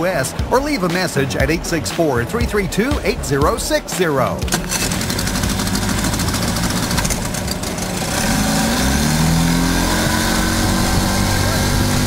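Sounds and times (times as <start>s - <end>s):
large engine running: 4.5s - 12.0s.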